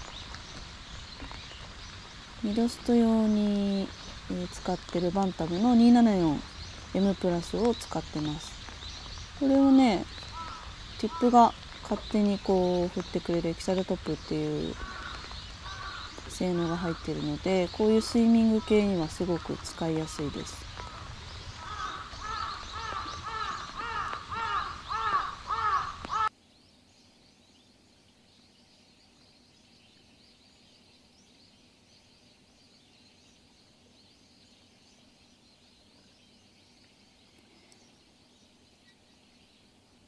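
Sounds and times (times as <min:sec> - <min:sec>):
crow cawing: 0:10.2 - 0:11.4, 0:14.7 - 0:17.0, 0:20.6 - 0:26.3.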